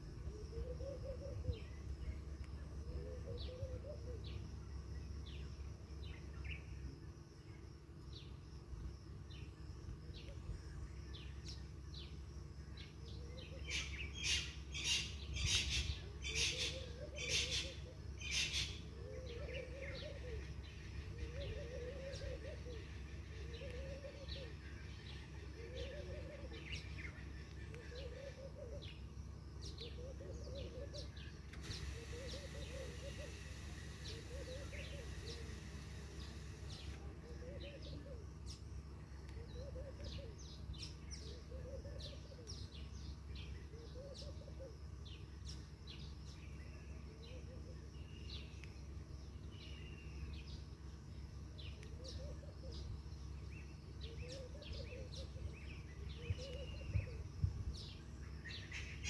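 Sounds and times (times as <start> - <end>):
steady low hum: 0.0 - 59.0
low bird call: 0.2 - 4.6, 12.8 - 50.6, 51.6 - 59.0.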